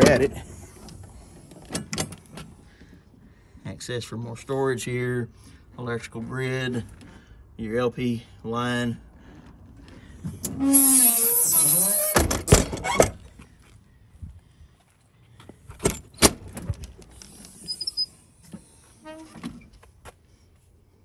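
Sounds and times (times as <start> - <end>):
door shutting clunks: 0.0 - 2.6, 12.0 - 13.2
door squeal with hiss: 10.6 - 12.3, 17.6 - 18.2.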